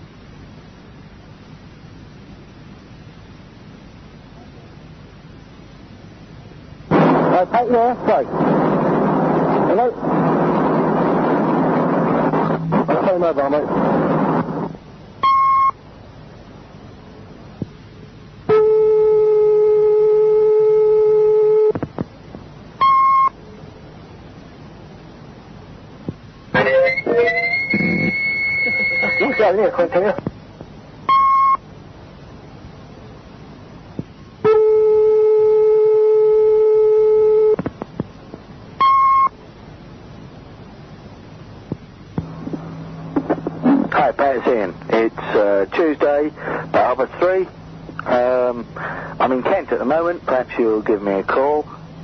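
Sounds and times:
long steady tone: 0:00.0 - 0:52.0
tape hiss: 0:00.0 - 0:52.0
telephone line tone: 0:15.2 - 0:15.8, 0:18.5 - 0:21.8, 0:22.8 - 0:23.4, 0:26.6 - 0:29.8, 0:34.4 - 0:37.6
short high beep: 0:26.6 - 0:29.5.

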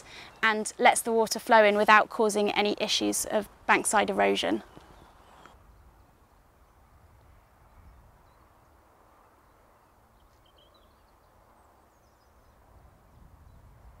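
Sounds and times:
bird chirps: 0:09.3 - 0:13.7.

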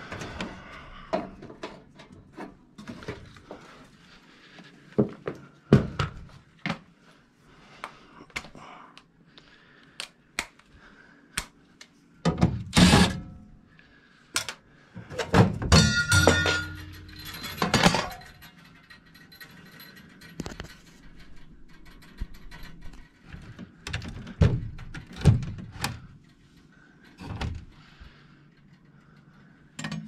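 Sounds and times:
hand tools clicking and knocking: 0:14.4 - 0:25.9, 0:29.8 - 0:30.0
metal clatter: 0:15.2 - 0:23.5.

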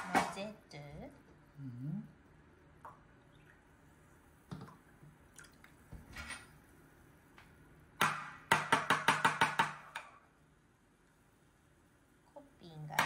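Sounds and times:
liquid being poured: 0:02.8 - 0:05.9.

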